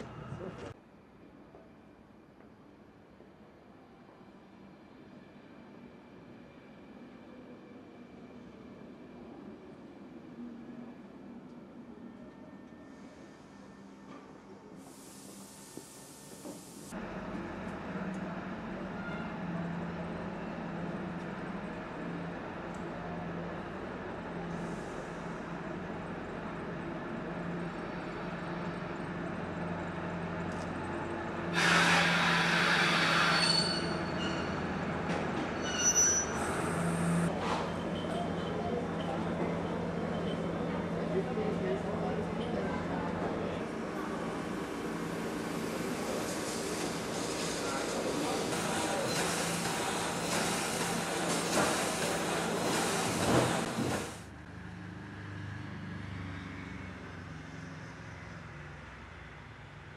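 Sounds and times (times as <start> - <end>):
diesel locomotive engine hum: 0.0 - 0.8, 15.4 - 59.9
loud hiss: 14.8 - 16.9
wheel or brake squeals: 31.6 - 34.7, 35.6 - 38.5.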